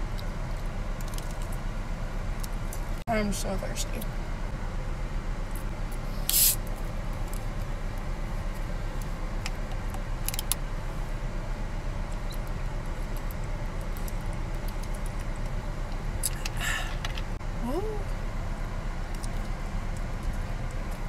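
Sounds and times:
low rumble inside car: 0.0 - 21.0
plastic soda bottle hissing open: 6.2 - 6.6.

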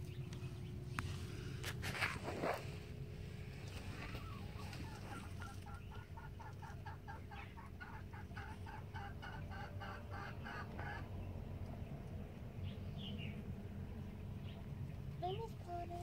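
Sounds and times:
hen clucking: 3.7 - 11.2.

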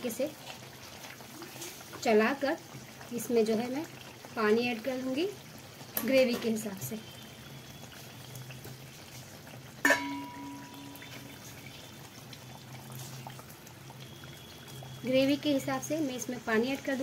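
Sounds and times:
water trickling into curry: 0.0 - 17.0.

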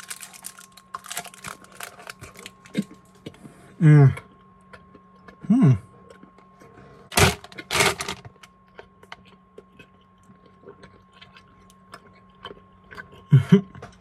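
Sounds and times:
person chewing candy: 0.0 - 3.5, 4.1 - 6.4, 8.6 - 14.0
person humming: 5.4 - 5.8.

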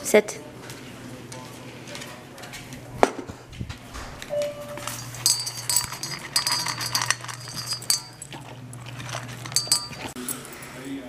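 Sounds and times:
collar tag clinking on metal bowl: 4.8 - 11.0
dog crunching kibble: 4.9 - 10.8.

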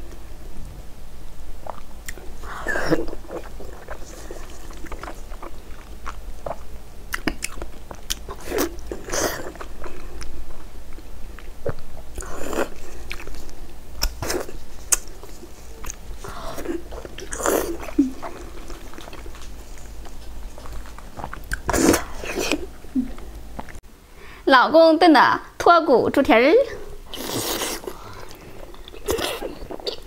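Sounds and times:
wet mouth sounds: 1.6 - 10.3, 11.4 - 23.8, 27.1 - 30.0
woman chewing: 1.6 - 23.8, 27.1 - 30.0.

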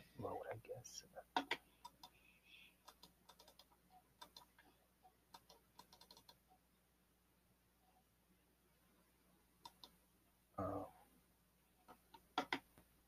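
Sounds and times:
computer keyboard clicking: 2.8 - 4.5, 5.3 - 6.4, 9.6 - 10.0, 12.2 - 12.7.

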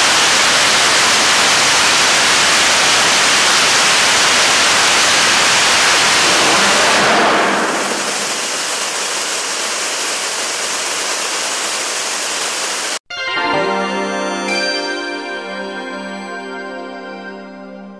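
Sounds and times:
rocket engine roaring: 0.0 - 13.0
music: 13.1 - 17.9.

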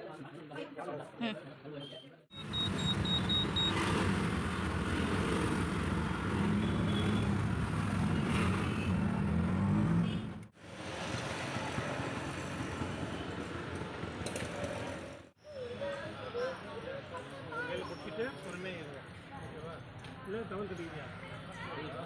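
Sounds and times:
street noise: 0.0 - 22.0
road and traffic noise: 2.3 - 22.0
auto-rickshaw engine running: 2.4 - 15.3.

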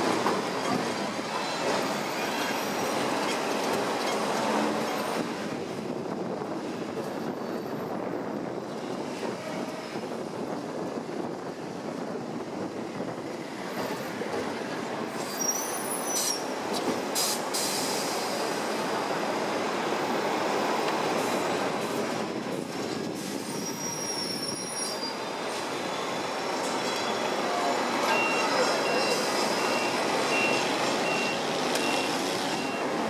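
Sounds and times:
tram rumbling on rails: 0.0 - 33.0
wheel squeals: 15.1 - 16.5, 23.4 - 25.2.

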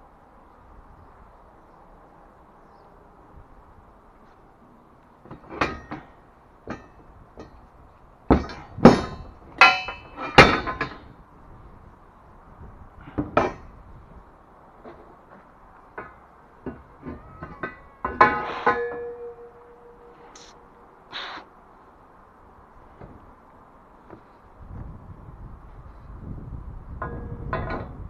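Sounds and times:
metal scaffold parts clanking: 5.2 - 7.7, 8.3 - 11.2, 14.8 - 20.5, 27.0 - 28.0.

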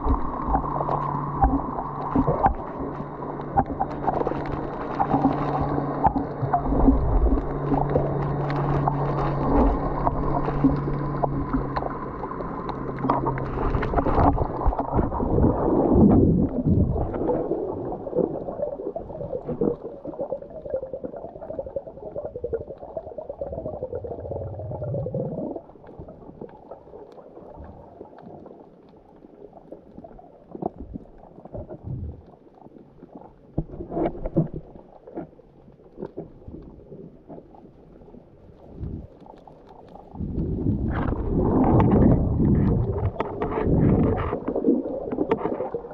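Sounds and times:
faint clicks and taps: 0.0 - 11.9
underwater water rushing and gurgling: 0.0 - 45.9.

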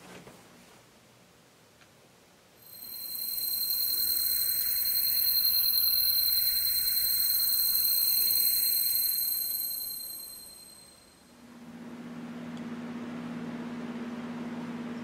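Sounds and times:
high-pitched electronic ringing tone: 2.6 - 11.4.

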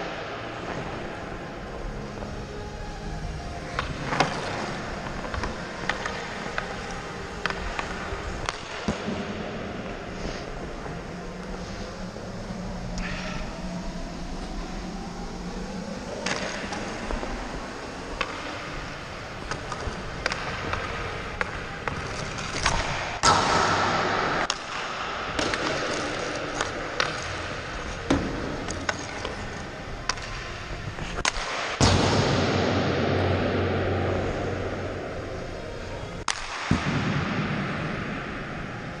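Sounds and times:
skate blades scraping ice: 0.5 - 14.7, 16.0 - 31.8
stick and puck knocking on ice: 3.7 - 9.2
sharp puck shot cracks: 7.4 - 9.3, 22.6 - 27.4, 31.2 - 34.1, 36.2 - 38.5.

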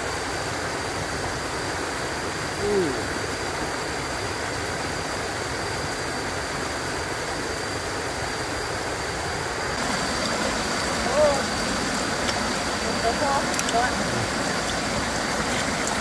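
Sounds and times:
water rushing over weir: 0.0 - 16.0.

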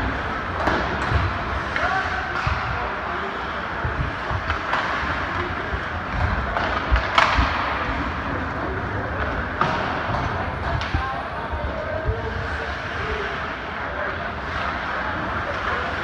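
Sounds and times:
hockey sticks clacking on puck: 0.0 - 11.1, 14.4 - 16.0
arena crowd hubbub: 0.0 - 16.0.

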